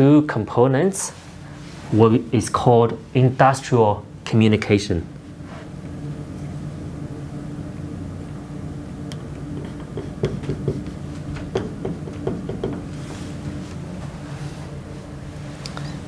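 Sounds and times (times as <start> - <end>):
steady low hum: 0.0 - 16.0
marker tapping on whiteboard: 9.6 - 12.9.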